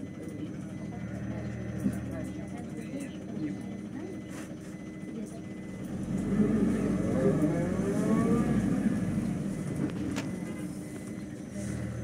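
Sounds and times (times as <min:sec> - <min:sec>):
bus engine revving: 0:05.8 - 0:12.0.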